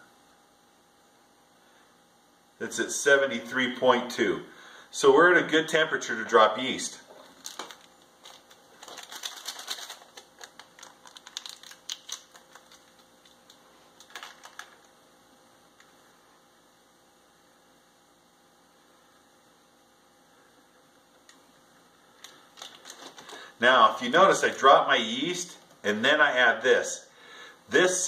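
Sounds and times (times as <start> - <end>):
packet crinkling: 7.1 - 14.9, 22.2 - 23.5.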